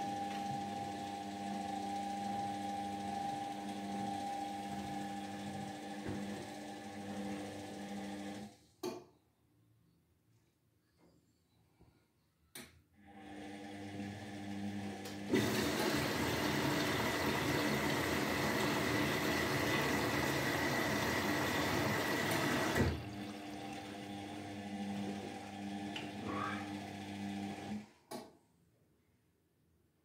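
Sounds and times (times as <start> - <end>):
washing machine hum: 0.0 - 8.6, 13.0 - 27.9
water rushing through machine: 15.3 - 24.1.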